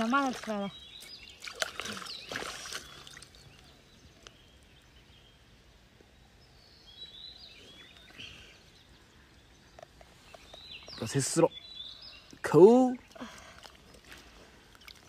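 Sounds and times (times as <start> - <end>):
digging in wet mud: 0.0 - 3.4, 12.4 - 15.0
hands splashing in muddy water: 0.0 - 3.4.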